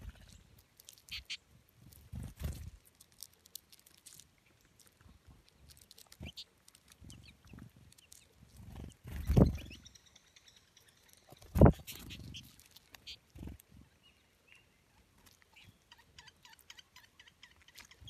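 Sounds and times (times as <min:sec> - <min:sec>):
beaks cracking seed hulls: 0:00.0 - 0:09.6, 0:11.0 - 0:13.7
wings fluttering: 0:00.0 - 0:09.9, 0:11.2 - 0:13.8
faint high bird chirps: 0:06.2 - 0:18.0.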